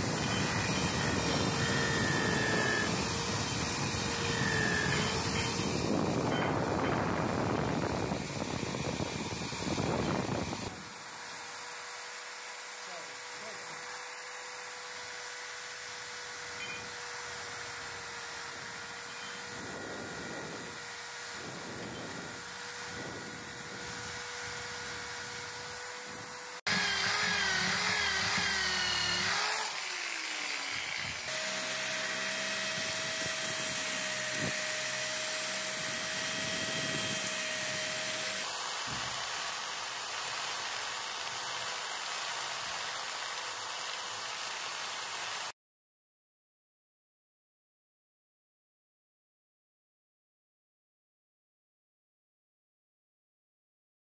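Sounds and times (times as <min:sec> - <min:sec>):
drill wire brush scraping metal: 0:00.0 - 0:45.5.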